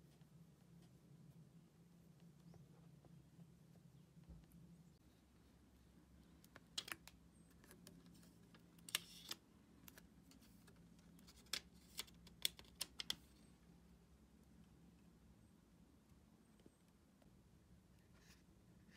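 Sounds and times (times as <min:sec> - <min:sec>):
plastic film clicks and crackles: 0:06.4 - 0:13.3.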